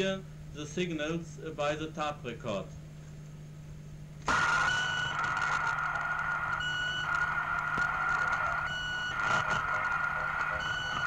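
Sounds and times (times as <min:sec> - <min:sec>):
radio hiss and crackle: 0:04.2 - 0:11.0.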